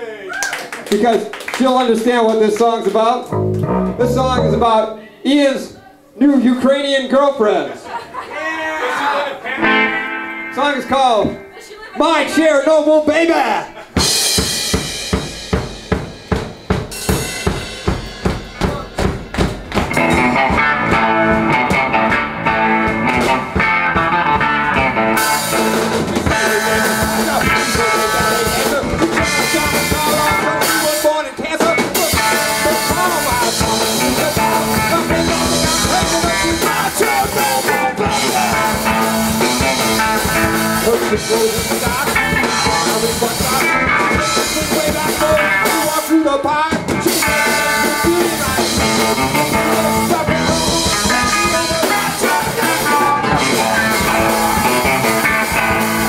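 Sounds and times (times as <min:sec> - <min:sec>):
punk band playing: 0:03.2 - 0:05.2, 0:09.6 - 0:12.4, 0:13.7 - 0:56.0
steady drum beat: 0:03.3 - 0:05.0, 0:13.8 - 0:56.0.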